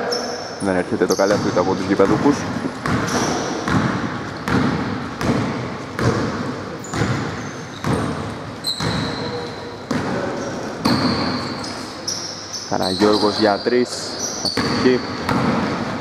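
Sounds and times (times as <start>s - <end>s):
sneaker squeaks: 0.0s - 5.3s, 5.9s - 16.0s
basketball bouncing on wooden floor: 1.2s - 11.5s, 14.5s - 16.0s.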